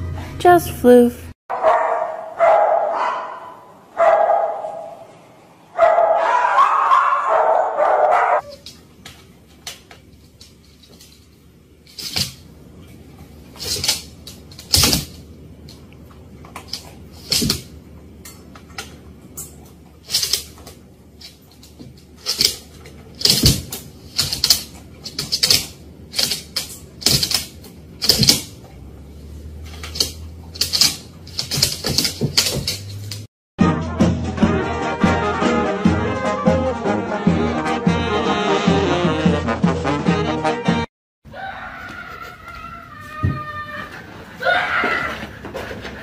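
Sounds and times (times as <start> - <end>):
dog claws clicking on wooden floor: 20.1 - 28.5, 29.7 - 33.2.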